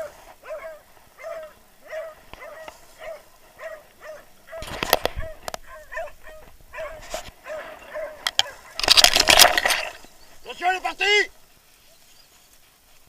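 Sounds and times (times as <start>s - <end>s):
dogs barking: 0.0s - 9.1s
rustling of dry bracken: 0.0s - 13.0s.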